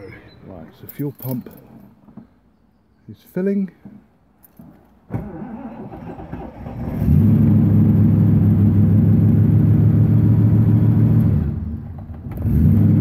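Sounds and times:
car engine starting and running: 5.1 - 13.0.

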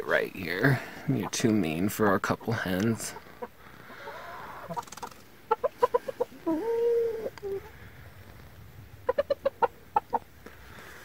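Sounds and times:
chicken clucking: 3.0 - 7.7, 9.0 - 10.3.

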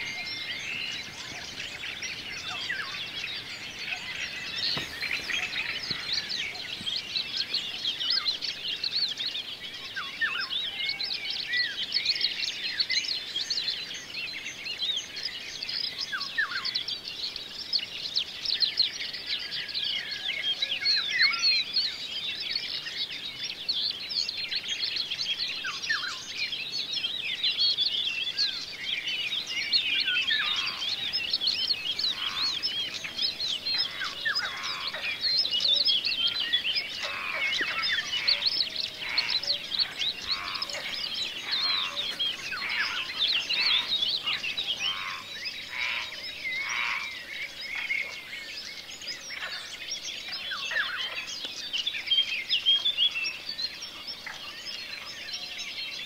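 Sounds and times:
songbirds singing: 0.0 - 56.0
lower bird call: 29.7 - 47.9.

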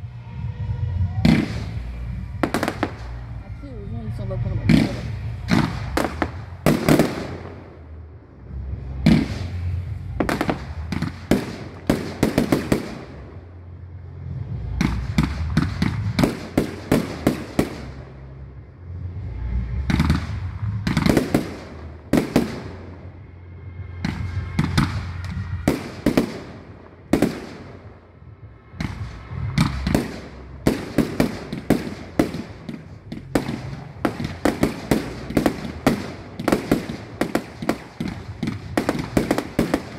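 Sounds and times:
fireworks bangs and crackles: 0.0 - 39.9
low rumble: 0.0 - 39.9.

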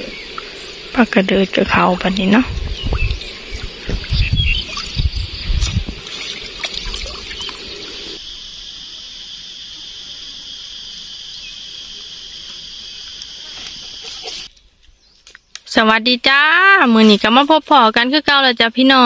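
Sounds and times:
water sounds: 0.0 - 8.9
insect chorus droning: 0.0 - 19.0
low thumps: 1.7 - 7.2.

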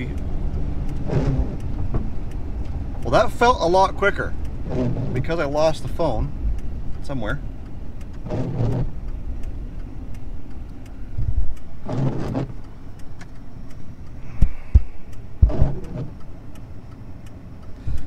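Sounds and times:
car engine and road rumble: 0.0 - 18.0
dull thumps: 1.0 - 2.1, 4.6 - 5.4, 8.2 - 9.0, 14.4 - 16.1.

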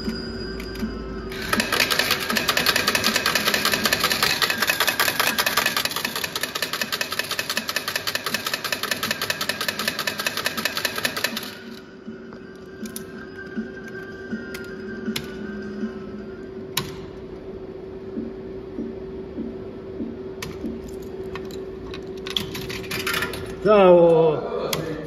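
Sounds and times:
slot machine rapid ticking: 1.3 - 11.8.

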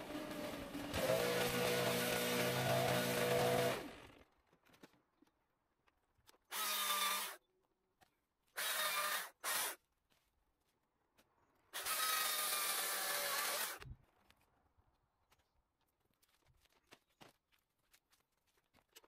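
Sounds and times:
battery chainsaw bursts: 0.0 - 4.2, 6.5 - 7.4, 8.6 - 9.8, 11.8 - 13.8.

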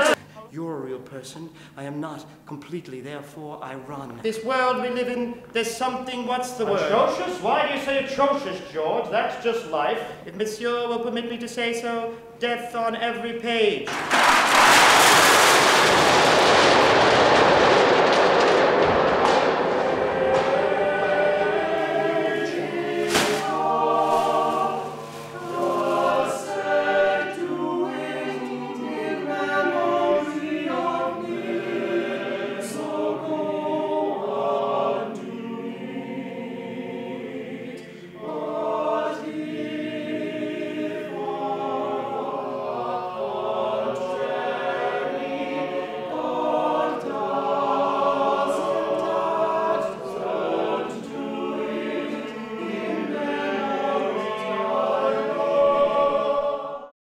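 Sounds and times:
male chorus singing in harmony: 0.0 - 0.2, 6.5 - 9.0, 19.4 - 56.9
sharp knock: 13.9 - 23.6.

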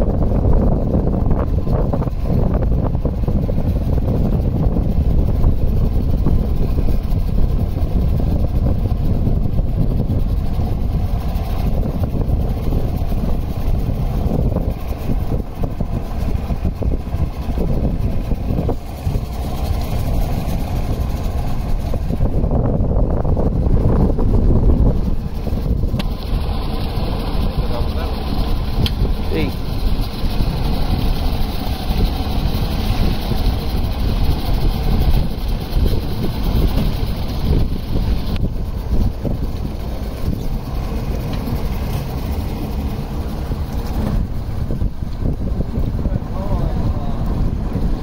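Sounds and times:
small boat rumbling on water: 0.0 - 48.0.

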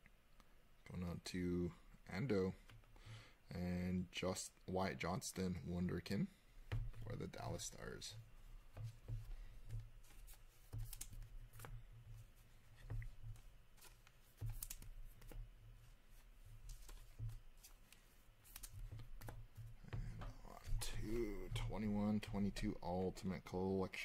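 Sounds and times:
low steady hum: 0.0 - 24.0
plastic sleeves rustling: 6.5 - 24.0
trading cards clicking and rustling: 9.0 - 11.8, 12.8 - 15.5, 16.6 - 22.9.

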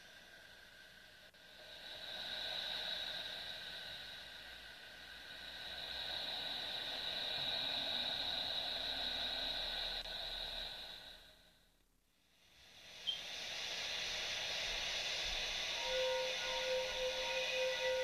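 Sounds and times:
hissing drone: 0.0 - 11.3, 12.6 - 18.0.

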